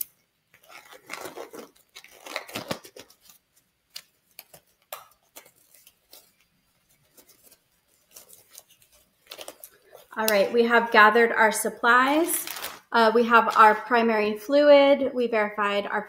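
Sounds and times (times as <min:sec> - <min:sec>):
gloves rustling and stretching: 0:00.0 - 0:14.0.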